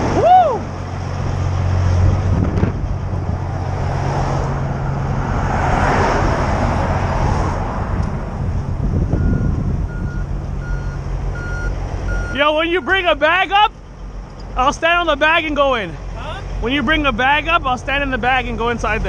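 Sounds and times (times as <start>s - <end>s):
diesel trucks idling: 0.0s - 19.0s
car passing by: 3.3s - 8.4s
truck reversing beeper: 4.7s - 5.2s, 9.1s - 13.1s.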